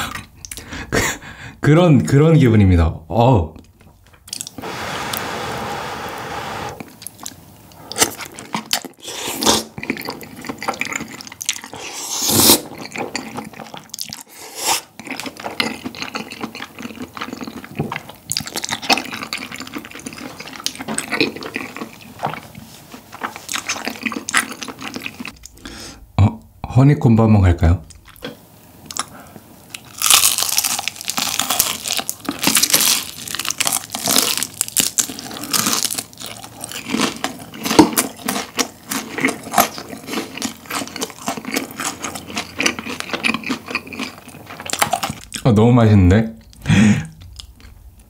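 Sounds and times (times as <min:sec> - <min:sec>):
noodle slurping: 0:04.3 - 0:07.0
chewing with sticky smacks: 0:06.8 - 0:09.0, 0:09.6 - 0:11.8, 0:12.7 - 0:14.3, 0:14.9 - 0:25.6, 0:27.8 - 0:29.1, 0:29.7 - 0:45.5.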